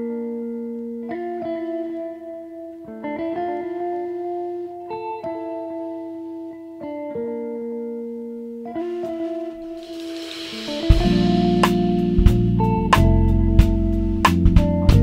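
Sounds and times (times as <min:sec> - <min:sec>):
background music chords: 0:08.8 - 0:14.3.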